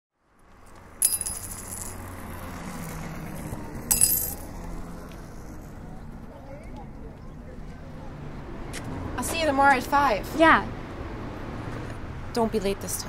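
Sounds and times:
low street ambience: 0.2s - 13.0s
coins clinking and jingling: 1.0s - 4.6s.

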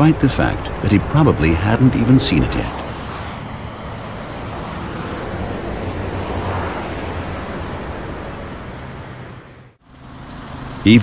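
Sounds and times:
highway traffic rushing: 0.0s - 11.0s.

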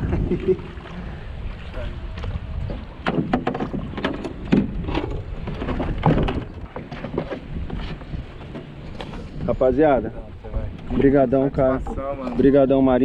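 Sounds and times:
wind rumble on microphone: 0.0s - 13.0s
knocks and thumps: 3.0s - 9.2s.

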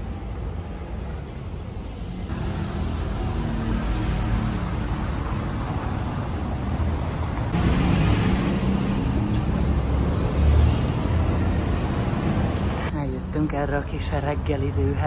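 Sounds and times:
street traffic passing: 0.0s - 15.0s.

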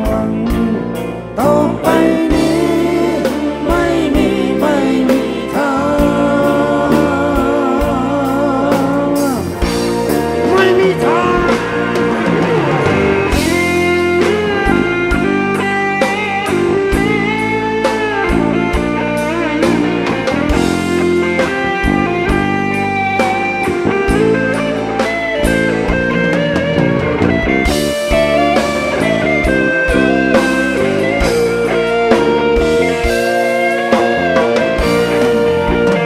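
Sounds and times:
person singing: 0.0s - 9.8s, 10.4s - 15.4s
live rock band playing: 0.0s - 36.0s.

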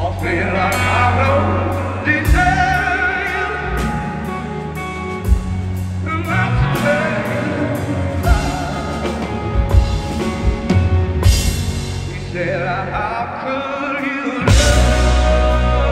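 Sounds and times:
person singing with vibrato: 0.0s - 10.6s, 12.0s - 15.9s
guitar and bass: 0.0s - 15.9s
drum hits: 14.5s - 15.9s.

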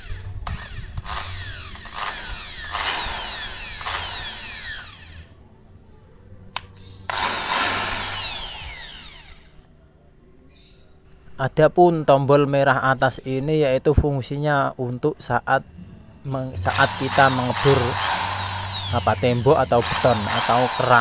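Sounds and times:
drill motor whining: 0.0s - 5.4s, 7.1s - 9.6s, 16.6s - 21.0s.

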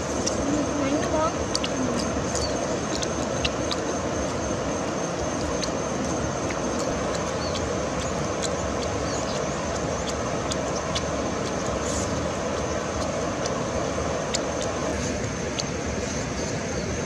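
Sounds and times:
chewing and tearing meat: 0.0s - 17.0s.

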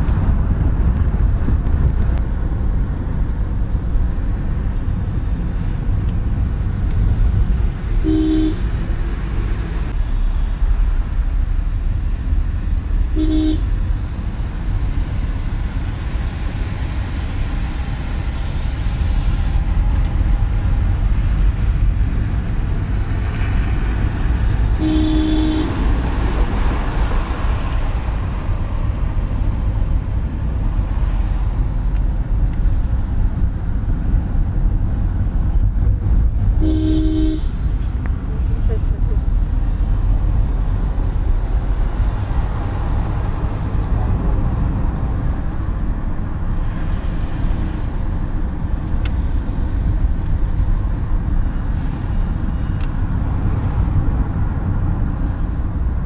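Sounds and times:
car engine and road noise: 0.0s - 56.0s
vehicle horn toots: 8.0s - 8.7s, 13.1s - 13.7s, 24.8s - 25.9s, 36.6s - 37.6s.

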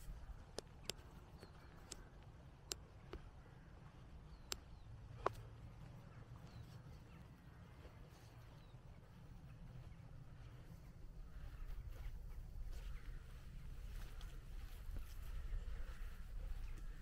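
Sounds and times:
sharp clicks: 0.0s - 2.1s, 4.4s - 5.4s
faint bird chirps: 0.0s - 17.0s.

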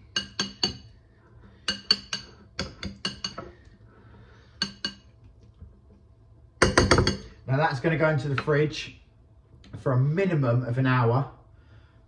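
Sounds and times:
spoon clinking on glass bowl: 0.0s - 0.9s, 1.7s - 3.5s, 4.6s - 5.1s.

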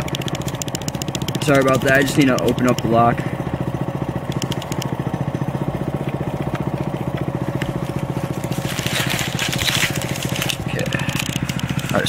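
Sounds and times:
small engine idling: 0.0s - 12.0s
rustling: 7.4s - 12.0s.

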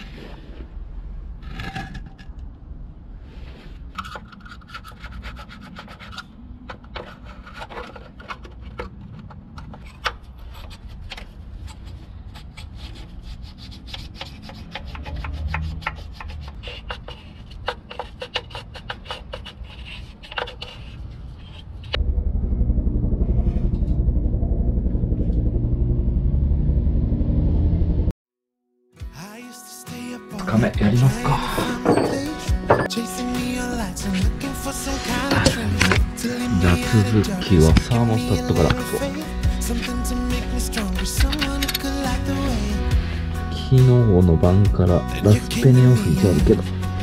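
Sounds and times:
scraping gasket residue off metal: 4.0s - 22.0s
loud background music: 29.9s - 47.0s.

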